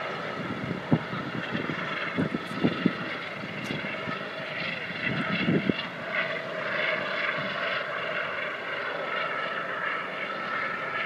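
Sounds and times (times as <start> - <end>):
wind rumble on microphone: 0.0 - 8.8
helicopter turbine whine: 0.0 - 11.0.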